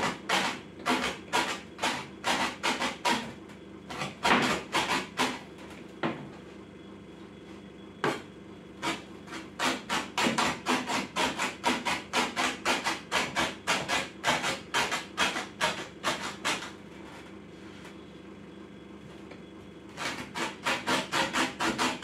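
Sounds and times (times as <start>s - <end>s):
hatchet chopping on wooden board: 4.0s - 5.4s, 9.6s - 16.6s.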